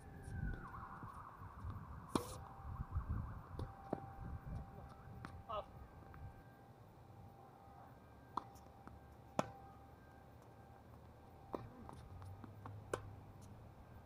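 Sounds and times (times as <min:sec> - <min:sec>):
tennis ball hitting hard court: 0:02.1 - 0:02.4, 0:09.3 - 0:09.6, 0:11.5 - 0:13.2.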